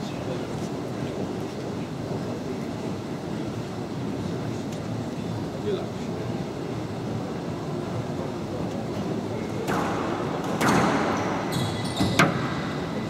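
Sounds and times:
murmur of spectators: 0:00.0 - 0:13.0
squash ball strikes: 0:09.6 - 0:12.6.

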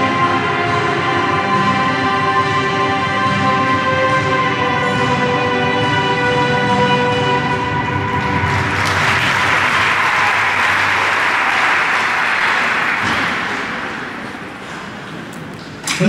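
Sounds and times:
music: 0:00.0 - 0:14.1
audience applauding: 0:07.9 - 0:14.9.

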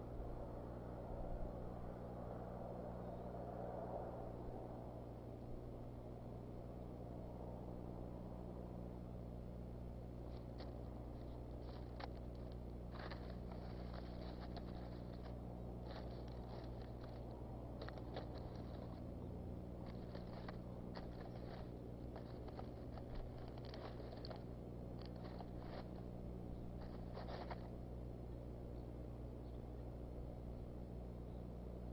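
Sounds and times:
steady low hum: 0:00.0 - 0:31.9
sticks crackling and rustling: 0:10.2 - 0:27.9.

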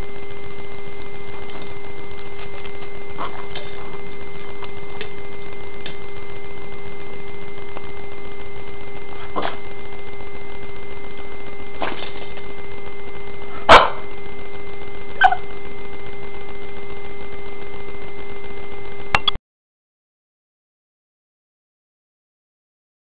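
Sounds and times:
steady hum: 0:00.0 - 0:19.4
dog barking: 0:13.6 - 0:14.1, 0:15.2 - 0:15.5.

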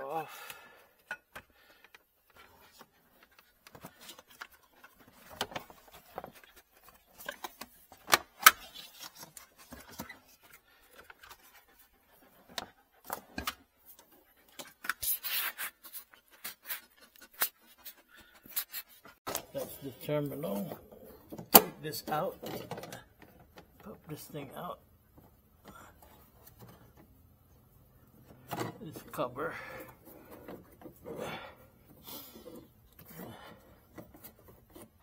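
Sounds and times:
rubbing and scraping: 0:01.4 - 0:21.2.

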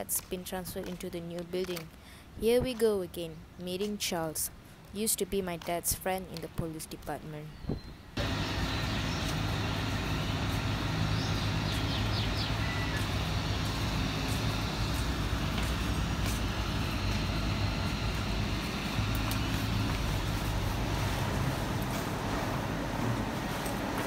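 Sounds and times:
low outdoor rumble: 0:08.1 - 0:24.0.

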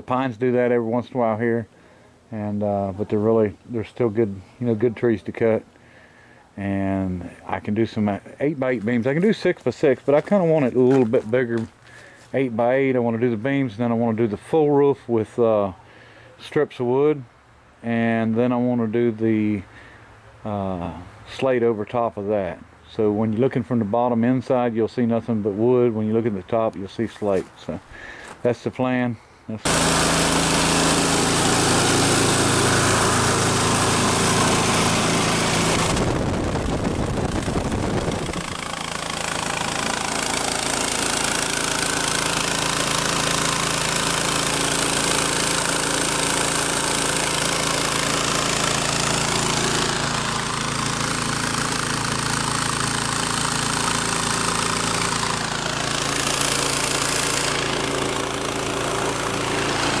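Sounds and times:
small gasoline engine running: 0:29.6 - 1:00.0
rush of blower air: 0:29.7 - 0:41.8.

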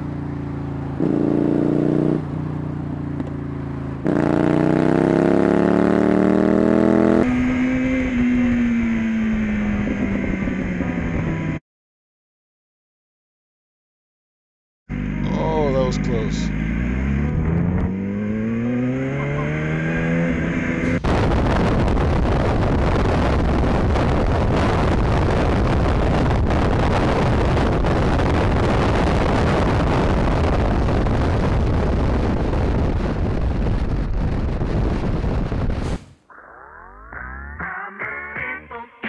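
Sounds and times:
motorcycle engine revving: 0:00.0 - 0:10.8, 0:14.9 - 0:26.8
wind noise on microphone: 0:05.5 - 0:11.6, 0:20.0 - 0:36.2
swooshing transition effect: 0:35.7 - 0:36.3.

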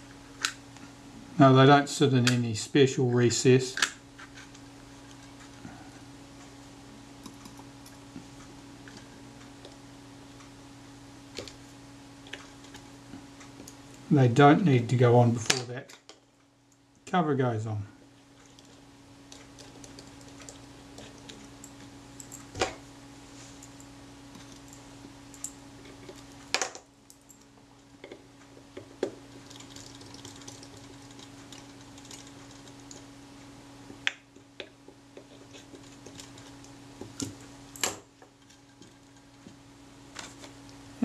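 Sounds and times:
steady low hum: 0:00.0 - 0:41.0.

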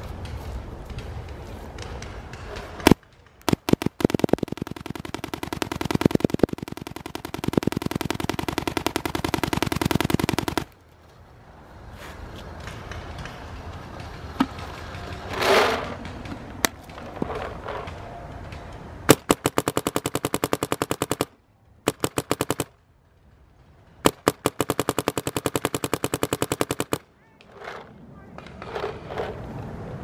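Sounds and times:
paintball marker firing rapidly: 0:02.5 - 0:10.8, 0:19.1 - 0:22.8, 0:24.0 - 0:27.0
isolated clicks: 0:02.8 - 0:10.8.

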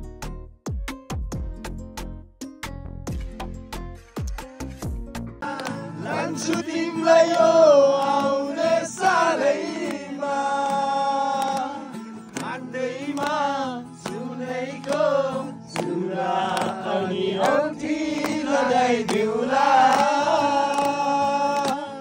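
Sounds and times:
acoustic guitar: 0:00.0 - 0:22.0
hand clapping: 0:05.4 - 0:22.0
men singing together: 0:05.4 - 0:22.0.

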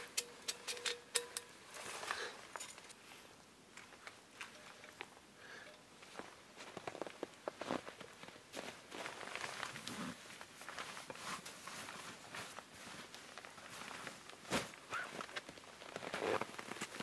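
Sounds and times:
rustling of gear being handled: 0:06.0 - 0:17.0.

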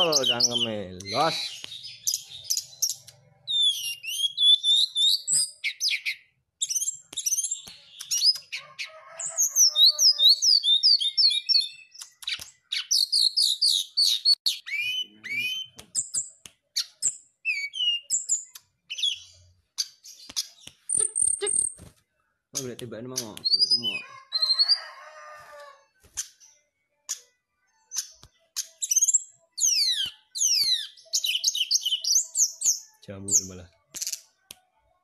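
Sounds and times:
bird singing whistles and clicks: 0:00.0 - 0:08.6, 0:09.7 - 0:19.2, 0:19.8 - 0:21.8, 0:22.6 - 0:24.7, 0:27.9 - 0:32.8.

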